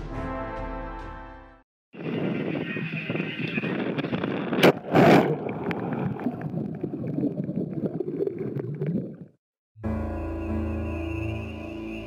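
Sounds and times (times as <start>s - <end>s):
underwater rushing: 4.1s - 9.4s.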